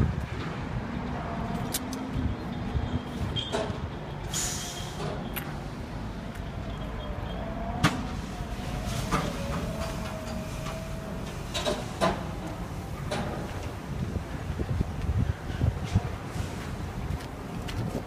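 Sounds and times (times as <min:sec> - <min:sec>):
low machinery rumble: 0:03.8 - 0:17.5.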